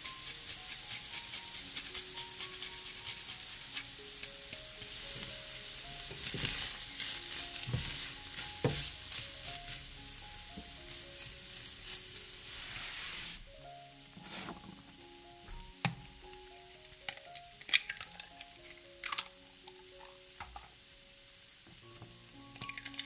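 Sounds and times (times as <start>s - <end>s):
food sizzling in hot oil: 0.0s - 23.0s
spatula scraping pan: 14.2s - 14.8s.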